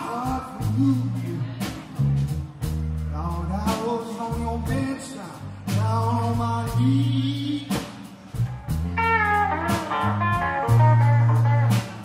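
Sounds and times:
live blues band playing: 0:00.0 - 0:12.0
bending electric guitar lead: 0:08.6 - 0:12.0.

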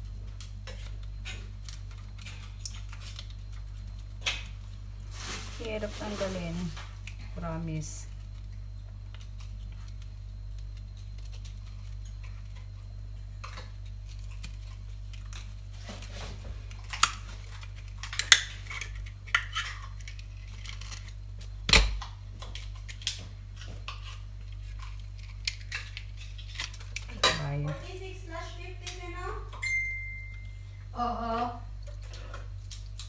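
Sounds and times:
knife scraping oyster shells: 0:16.8 - 0:21.3, 0:22.4 - 0:27.4.

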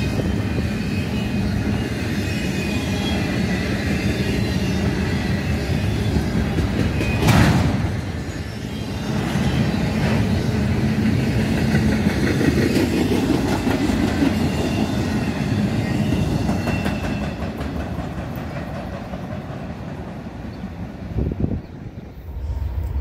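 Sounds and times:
freight train rolling past: 0:00.0 - 0:23.0
wheels clicking over rail joints: 0:16.1 - 0:20.7.

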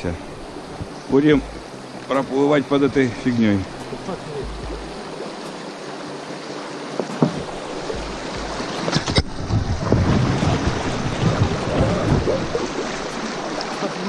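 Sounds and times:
river water rushing over rapid: 0:00.0 - 0:14.0
sharp knocks: 0:07.0 - 0:10.1.

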